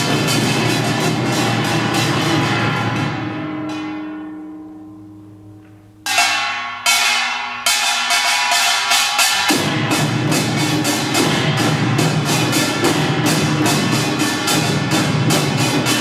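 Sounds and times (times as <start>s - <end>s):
drums playing fast: 0.0s - 3.4s, 7.0s - 16.0s.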